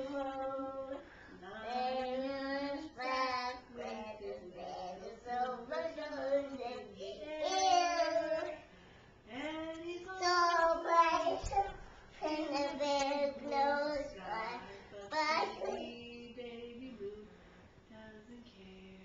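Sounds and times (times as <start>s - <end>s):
toddler singing: 1.6s - 8.6s, 9.9s - 16.2s.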